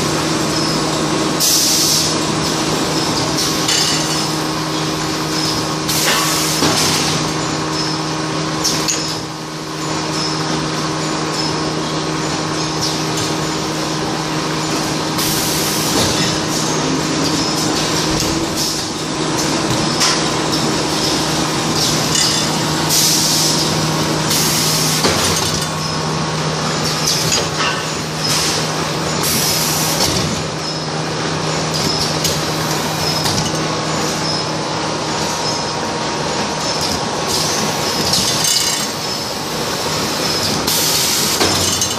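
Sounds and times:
packing machine hum and clatter: 0.0 - 41.9.

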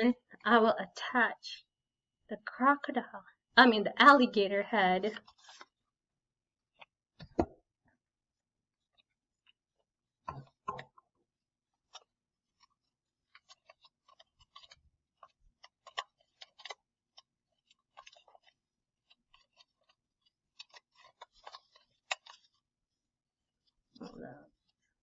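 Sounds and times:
paper and plastic crackling: 11.8 - 22.7.

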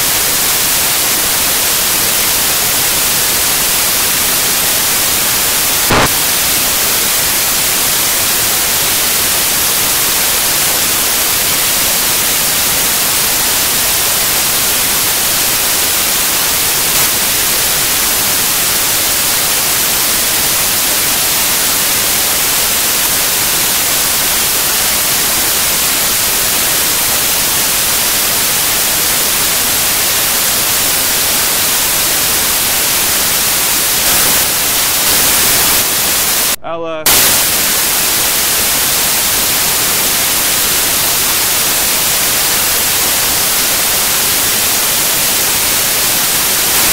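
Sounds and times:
loud static hiss: 0.0 - 46.9
brief click: 5.9 - 6.2.

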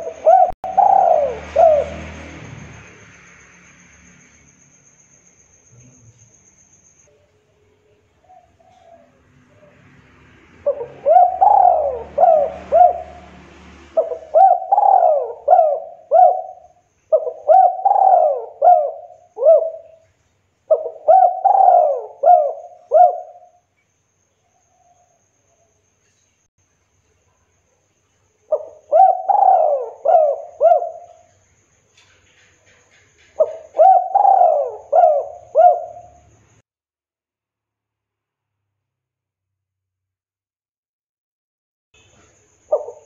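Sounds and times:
dove cooing: 0.0 - 2.3, 8.2 - 9.8, 10.6 - 13.3, 13.9 - 20.0, 20.7 - 23.6, 28.5 - 31.3, 33.3 - 36.3, 42.7 - 43.0.

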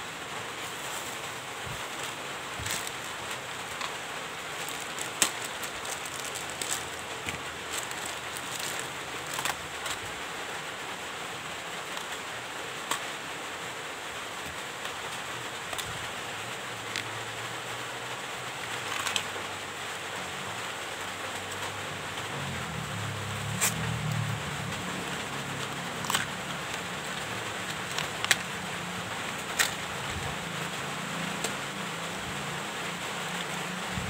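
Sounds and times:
steady hiss: 0.0 - 34.0
plastic bags crinkling: 0.6 - 10.5, 18.7 - 19.3, 23.5 - 34.0.

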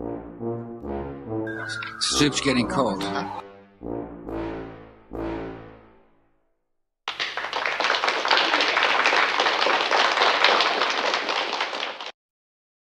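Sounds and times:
hands clapping: 7.1 - 12.2.

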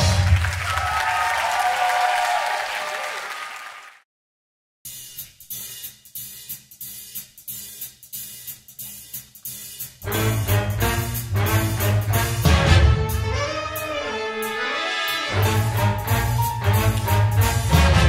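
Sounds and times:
audience applause: 0.0 - 4.0
drum kit cymbal and hi-hat rhythm: 4.9 - 18.0.

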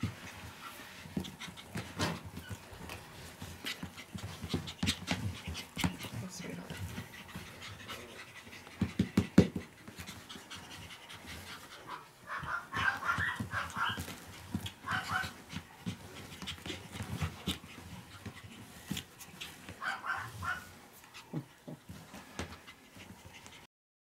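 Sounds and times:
puppies panting: 0.0 - 23.7
high puppy yips: 11.9 - 15.4, 19.8 - 20.7.

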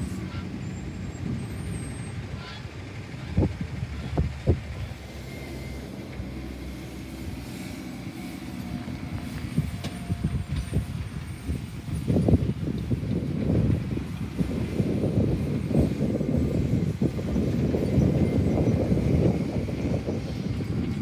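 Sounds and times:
truck diesel engine rumble: 0.0 - 21.0.

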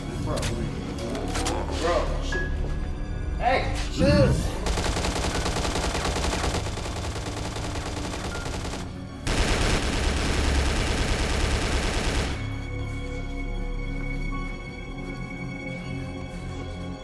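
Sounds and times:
music: 0.0 - 17.0
automatic rifle fire: 4.6 - 12.5.

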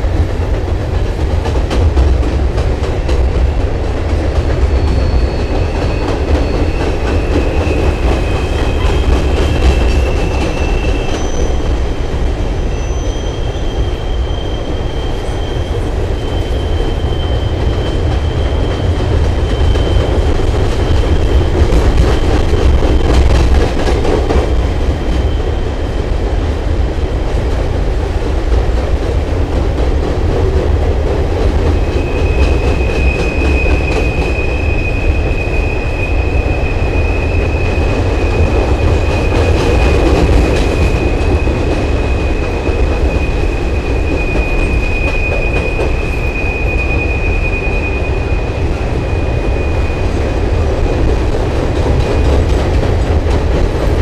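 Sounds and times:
train rumbling over steel bridge: 0.0 - 54.0
high wheel squeals: 4.8 - 22.9, 31.8 - 50.6.

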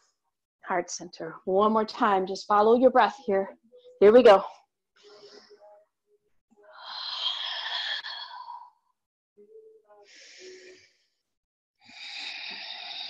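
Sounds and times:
woman breathing: 6.6 - 9.0, 10.0 - 13.0.

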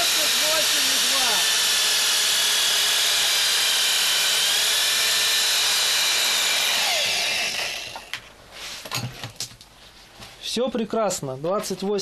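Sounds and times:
drill spinning alternator whine: 0.0 - 8.2.

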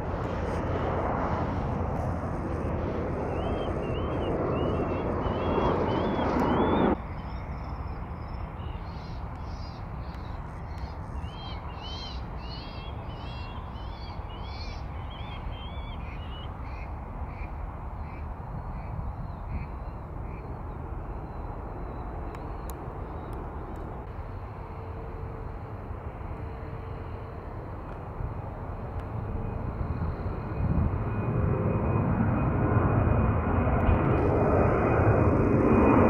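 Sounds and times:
low steady rumble: 0.0 - 11.2
jet engine noise: 0.0 - 36.0
small bird whistling: 3.3 - 7.5, 8.6 - 16.5.

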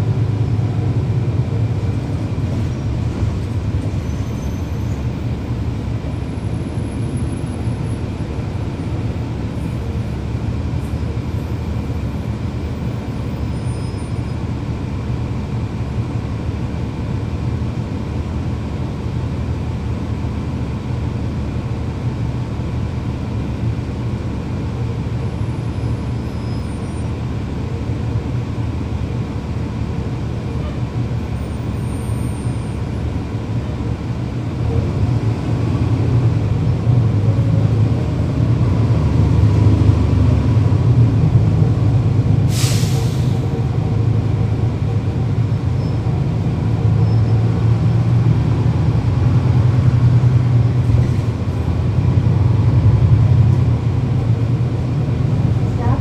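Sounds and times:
bus diesel engine: 0.0 - 56.0
sharp hiss of air: 42.5 - 43.4.

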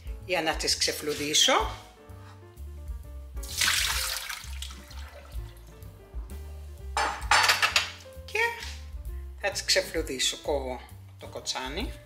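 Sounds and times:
background music: 0.0 - 12.0
water poured into a sink: 3.4 - 5.6.

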